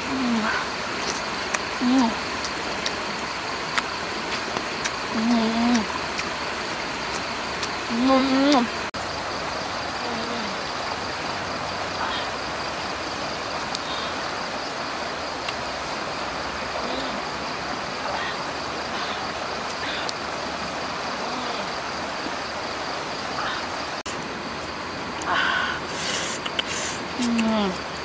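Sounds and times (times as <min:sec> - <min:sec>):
even hiss: 0:00.0 - 0:28.0
insects trilling: 0:00.0 - 0:28.0
person murmuring while eating: 0:01.8 - 0:02.3, 0:05.1 - 0:05.9, 0:25.2 - 0:27.9.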